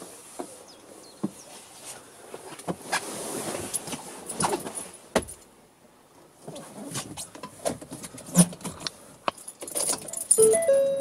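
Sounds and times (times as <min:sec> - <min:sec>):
keys jangling and clicking: 0:09.4 - 0:10.8.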